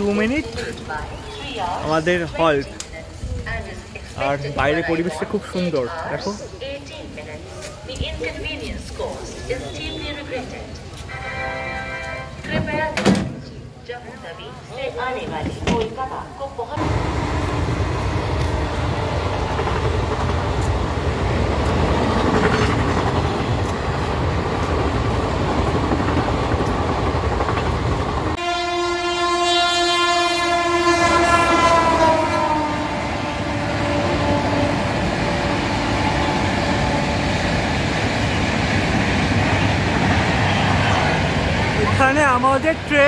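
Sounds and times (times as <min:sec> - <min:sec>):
train air horn: 0:11.1 - 0:12.4, 0:28.4 - 0:37.4
train rumble: 0:15.0 - 0:29.4, 0:30.1 - 0:43.0.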